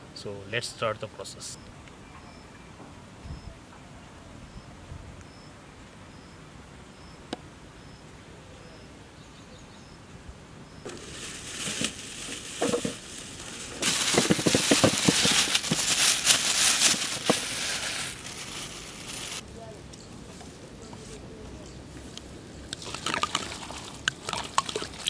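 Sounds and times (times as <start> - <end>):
rustling and crackling: 10.9 - 19.4.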